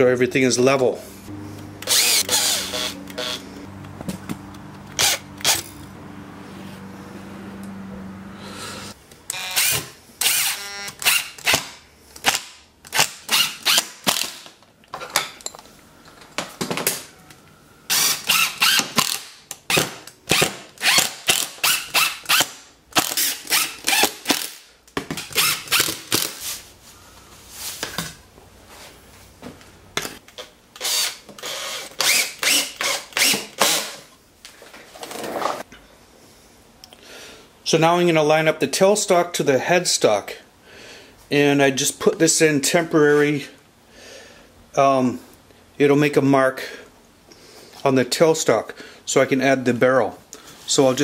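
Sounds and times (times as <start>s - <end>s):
cordless drill driving screws: 1.8s - 3.5s, 5.0s - 5.7s, 9.3s - 14.4s, 17.9s - 24.6s, 25.3s - 26.4s, 30.8s - 34.0s.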